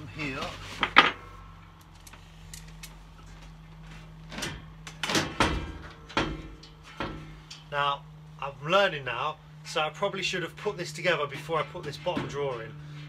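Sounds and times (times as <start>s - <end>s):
metal shelving clunking and rattling: 3.8s - 7.7s, 11.2s - 12.8s.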